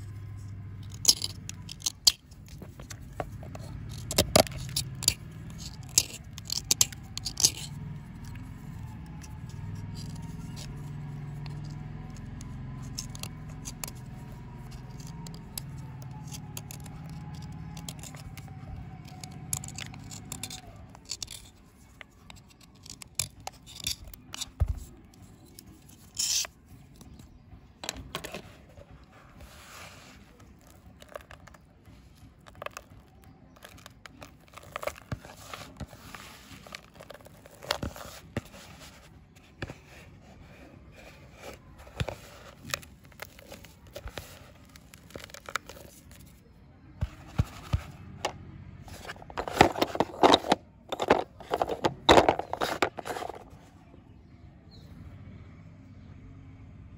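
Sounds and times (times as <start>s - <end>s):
knife scraping soap bar: 25.5s - 26.6s
soap shavings crumbling: 30.6s - 31.6s, 32.4s - 37.9s.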